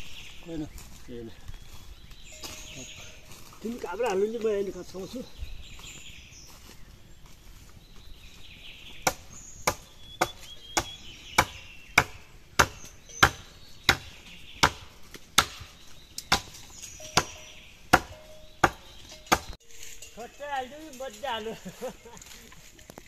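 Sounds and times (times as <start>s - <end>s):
faint bird chirps: 0.0s - 14.7s, 15.6s - 20.4s
chopping strikes: 9.0s - 19.6s.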